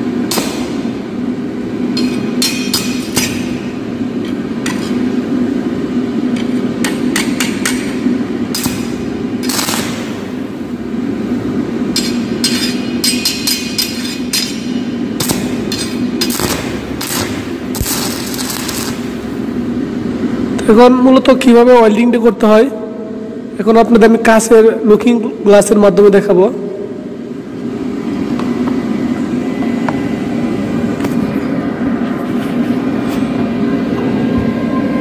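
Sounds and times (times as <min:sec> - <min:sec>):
steady low hum: 0:00.0 - 0:35.0
arc welding crackling and sputtering: 0:06.9 - 0:13.1, 0:14.1 - 0:19.7.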